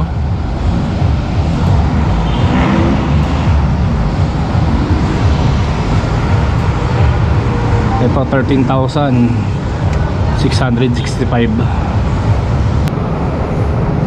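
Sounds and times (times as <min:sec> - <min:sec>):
busy road traffic: 0:00.0 - 0:14.0.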